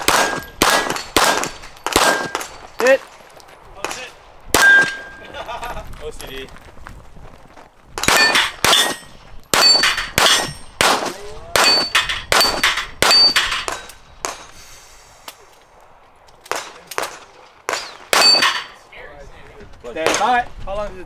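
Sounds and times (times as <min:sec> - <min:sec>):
gunshots: 0:00.0 - 0:03.0, 0:03.8 - 0:05.2, 0:08.0 - 0:14.5, 0:16.5 - 0:18.7
steel target plates pinging: 0:04.6 - 0:05.2, 0:08.1 - 0:10.8, 0:11.6 - 0:14.5, 0:17.8 - 0:18.8.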